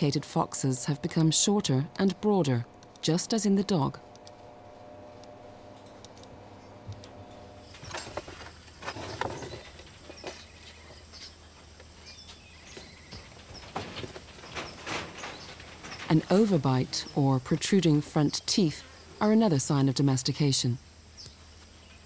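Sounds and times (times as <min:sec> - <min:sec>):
low hum: 0:00.0 - 0:22.0
rustling and light knocks: 0:07.7 - 0:16.7.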